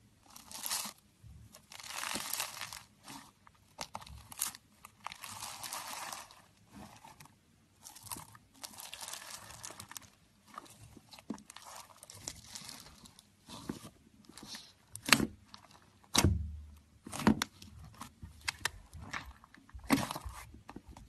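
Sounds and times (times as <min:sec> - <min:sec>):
slime squishing and popping: 0:01.7 - 0:03.2
dull thump: 0:16.2 - 0:17.4.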